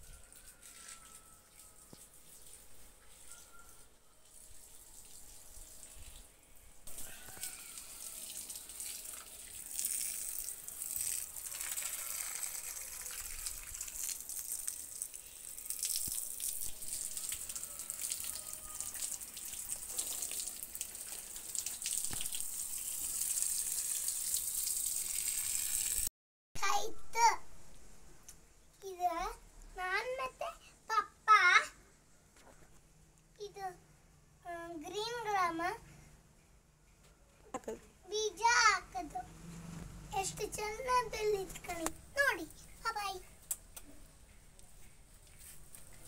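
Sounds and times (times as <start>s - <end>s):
garden hose water splashing: 0.0s - 26.1s, 40.2s - 43.8s.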